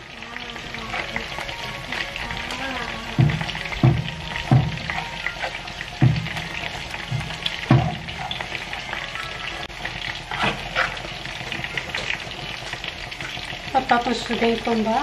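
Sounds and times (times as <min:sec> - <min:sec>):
steady sizzle: 0:00.0 - 0:15.0
fork knocking on pan: 0:03.2 - 0:06.4, 0:07.1 - 0:08.1
fork scraping frying pan: 0:10.3 - 0:11.1.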